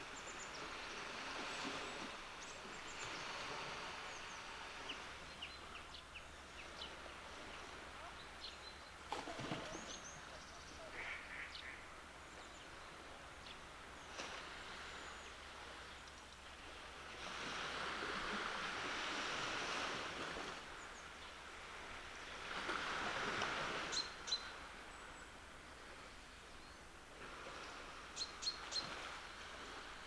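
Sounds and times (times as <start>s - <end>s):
small waves washing onto sand: 0.0s - 30.0s.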